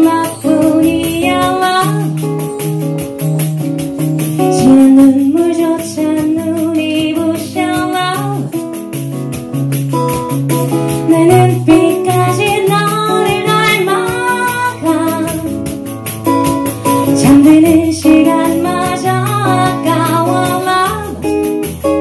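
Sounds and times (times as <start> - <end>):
woman singing into microphone: 0.0 - 3.0, 4.4 - 8.7, 10.9 - 15.9, 16.8 - 22.0
instrumental accompaniment with beat: 0.0 - 22.0.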